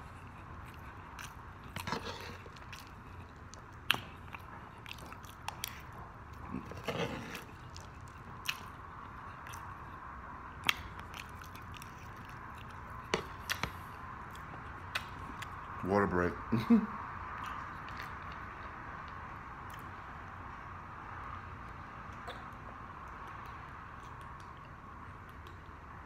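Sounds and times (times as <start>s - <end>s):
chewing fried food: 0.0s - 15.8s, 17.3s - 20.2s, 21.6s - 26.0s
wet mouth sounds: 22.1s - 24.7s.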